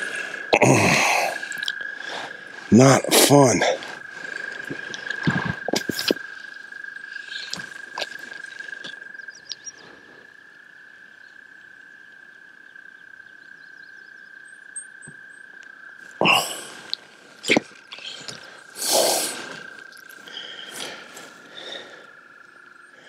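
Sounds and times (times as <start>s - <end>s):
frog chorus trilling: 0.0s - 23.0s
faint bird chirps: 4.4s - 15.7s.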